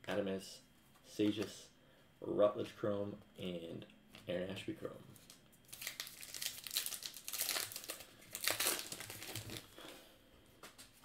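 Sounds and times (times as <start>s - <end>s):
wrapper crinkling and tearing: 5.2s - 9.9s.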